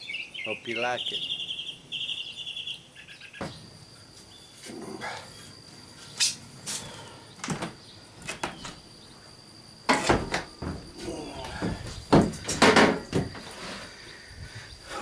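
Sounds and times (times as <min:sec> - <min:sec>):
bird chirping trill: 0:00.0 - 0:04.6.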